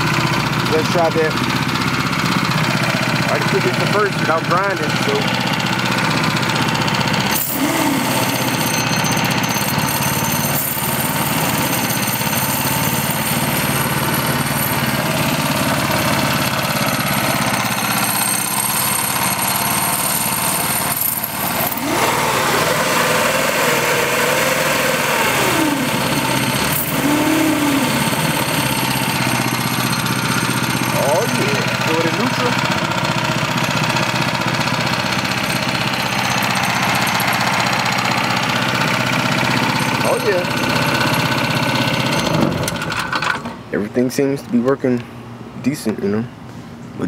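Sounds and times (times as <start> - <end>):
gearbox whine: 0.0 - 43.6
small gas engine running: 0.0 - 43.6.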